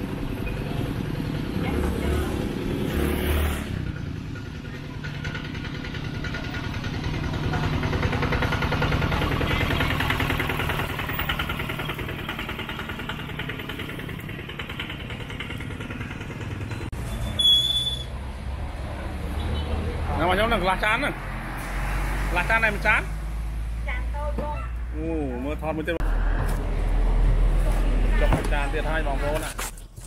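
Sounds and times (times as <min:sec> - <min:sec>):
small engine running: 0:04.8 - 0:16.9.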